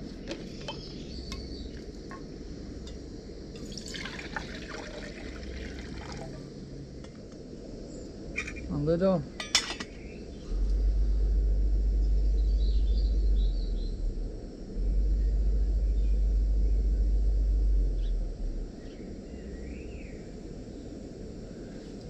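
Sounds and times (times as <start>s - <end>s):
birds chirping: 0.0s - 3.0s, 11.8s - 14.1s
wind rumbling on microphone: 0.0s - 22.0s.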